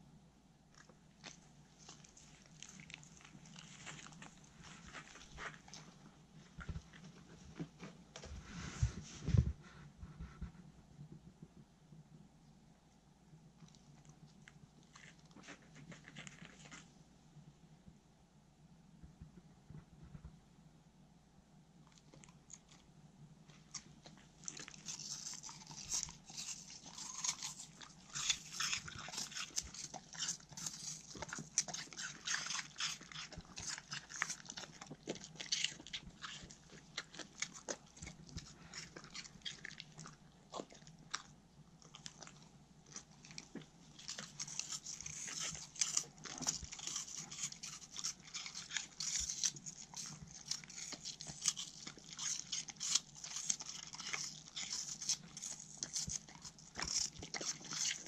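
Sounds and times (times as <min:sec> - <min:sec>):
dogs crunching apple: 0:00.7 - 0:09.4, 0:13.6 - 0:17.0, 0:23.5 - 0:58.0.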